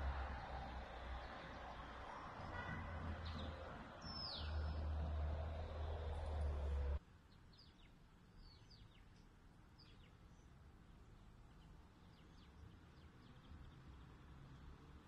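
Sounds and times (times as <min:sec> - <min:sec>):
small birds chirping: 0:03.2 - 0:04.9, 0:05.6 - 0:14.7.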